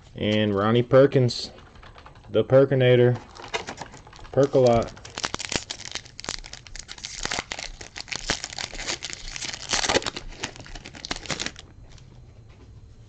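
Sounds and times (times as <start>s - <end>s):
foil wrapper crinkling and tearing: 3.2s - 11.7s.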